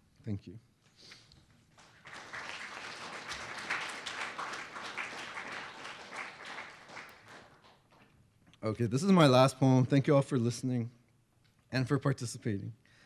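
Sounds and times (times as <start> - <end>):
audience applauding: 1.8 - 8.0.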